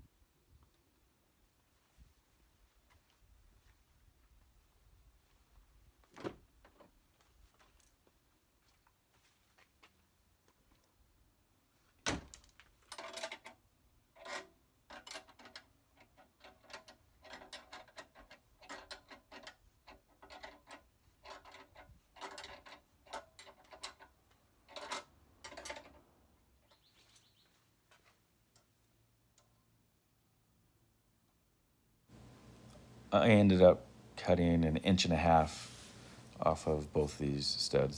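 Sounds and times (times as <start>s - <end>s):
wrench clicking and scraping metal: 12.9s - 26.0s.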